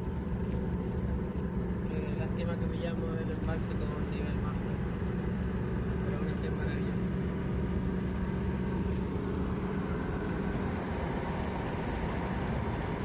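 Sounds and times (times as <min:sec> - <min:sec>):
car engine hum: 0:00.0 - 0:13.0
road noise: 0:00.0 - 0:13.0.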